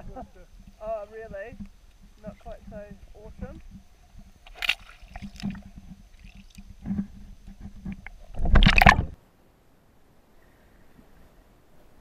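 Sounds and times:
water sloshing and gurgling: 0.0 - 9.2.

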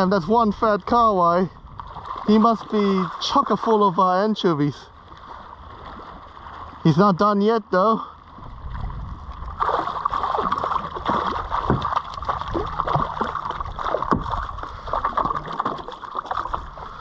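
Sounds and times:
water gurgling against hull: 0.0 - 17.0
fish thrashing and splashing: 1.8 - 3.8, 9.3 - 17.0.

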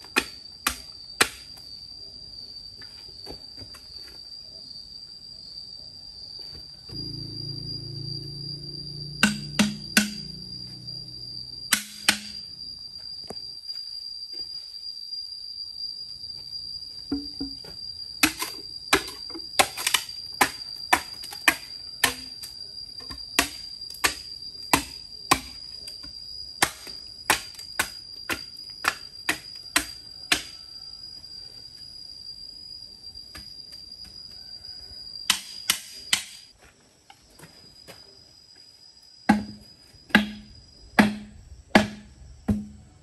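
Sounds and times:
steady high-pitched tone: 6.9 - 13.5
sharp knocks: 9.2 - 10.4, 39.3 - 42.8.

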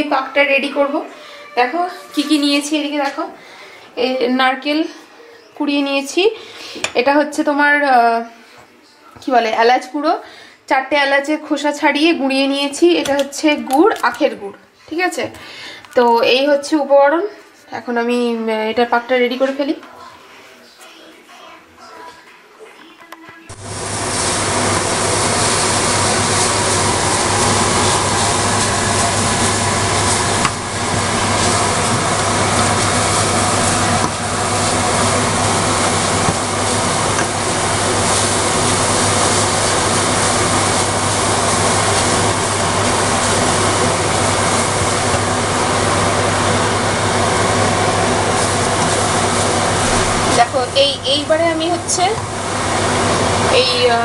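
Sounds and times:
extractor hood fan running: 23.5 - 54.0.

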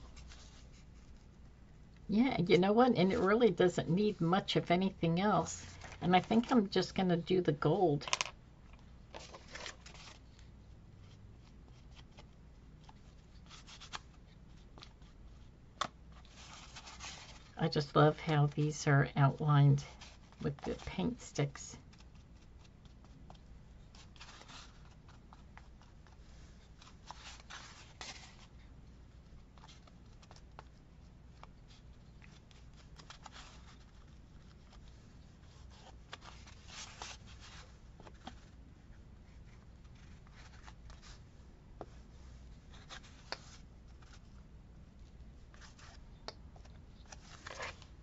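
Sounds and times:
paper and cardboard rustling: 9.1 - 15.5, 16.1 - 17.6, 19.9 - 28.7, 29.4 - 38.6, 46.6 - 48.0.

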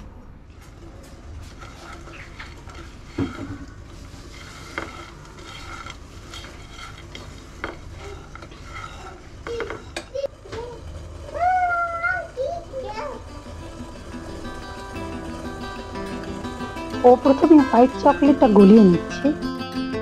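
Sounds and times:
spatula scraping nuts in pan: 1.4 - 10.3
person speaking: 17.0 - 19.5.

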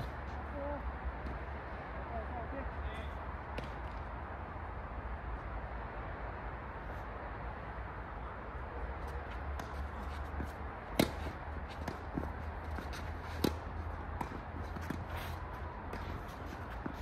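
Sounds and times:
tennis ball impacts: 9.5 - 17.0.

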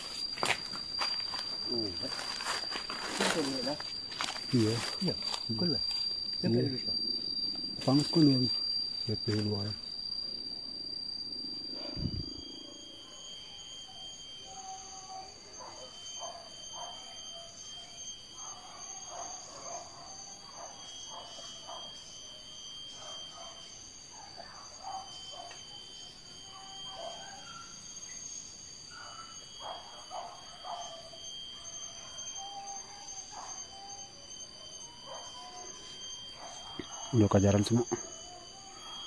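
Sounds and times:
high-pitched buzzing: 0.0 - 39.0
distant dogs barking and yelping: 11.6 - 39.0.

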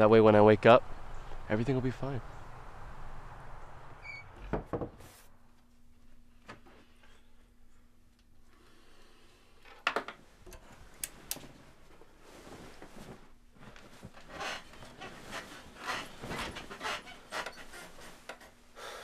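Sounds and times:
bedclothes rustling: 10.3 - 18.9.

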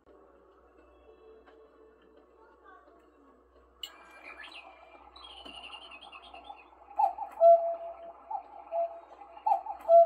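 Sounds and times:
faint high chirping: 3.8 - 10.0
cuckoo clock calls: 3.9 - 10.0.

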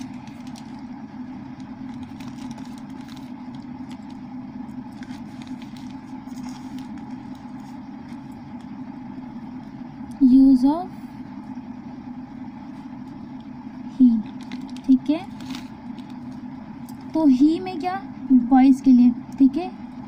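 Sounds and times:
low background hum: 0.0 - 20.0.

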